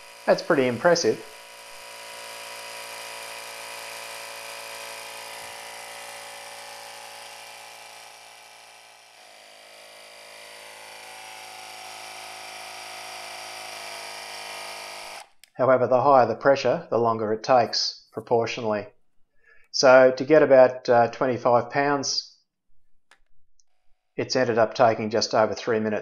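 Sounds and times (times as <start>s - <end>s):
tyre compressor whirring: 0.0s - 15.7s.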